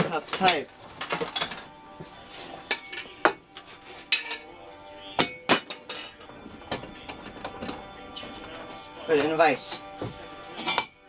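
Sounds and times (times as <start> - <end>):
metallic clinks and knocks: 2.6 - 4.6, 5.2 - 11.0.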